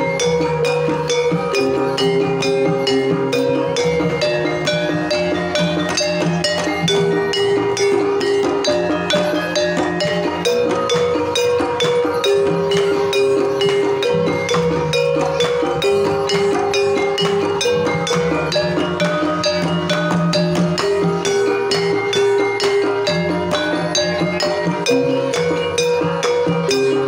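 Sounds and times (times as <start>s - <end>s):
gamelan keys and gongs: 0.0s - 27.0s
hand drums: 0.0s - 27.0s.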